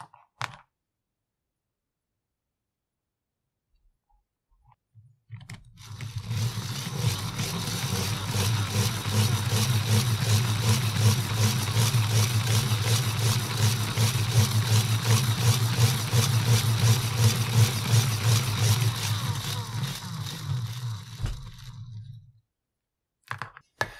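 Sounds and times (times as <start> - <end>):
plastic gears whirring and ticking: 5.5 - 22.3.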